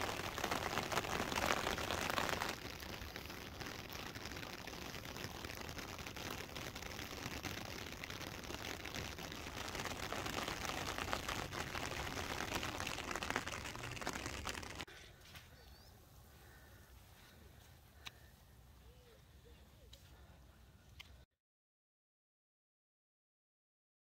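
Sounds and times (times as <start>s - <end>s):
rain falling on rocks: 0.0s - 14.9s.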